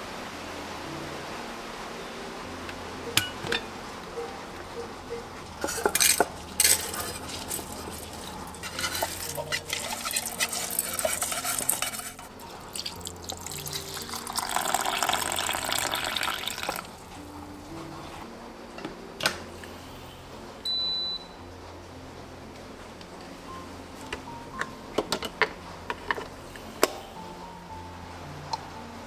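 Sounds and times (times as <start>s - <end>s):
water running into pot: 5.6s - 17.0s
rice pouring into pot: 6.1s - 17.0s.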